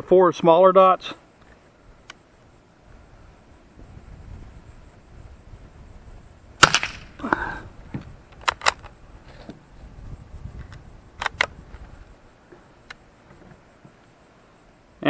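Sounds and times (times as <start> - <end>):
rifle shot: 6.6 - 7.2
rifle bolt clicking and rattling: 8.3 - 9.0, 11.2 - 11.5.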